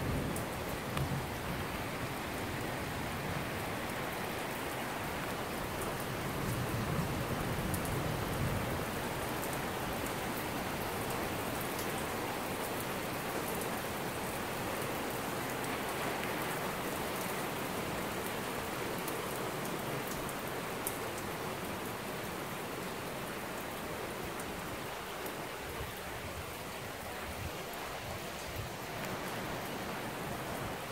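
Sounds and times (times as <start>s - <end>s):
heavy rain on street and cars: 0.0s - 30.9s.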